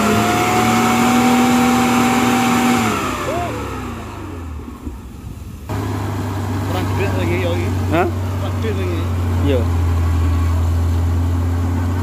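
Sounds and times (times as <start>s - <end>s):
engine revving hard: 0.0s - 4.7s.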